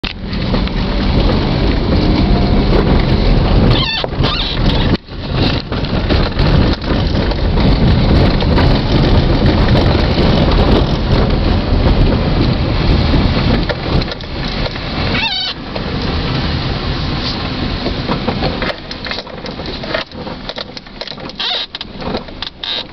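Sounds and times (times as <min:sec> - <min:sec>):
car body rattling and knocking: 0:00.0 - 0:22.9
brief squeaks: 0:03.7 - 0:05.0, 0:15.1 - 0:15.6.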